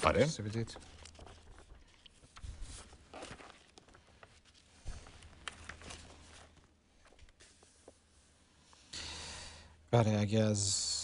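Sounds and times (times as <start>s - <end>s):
book pages rustling: 0.0s - 8.4s.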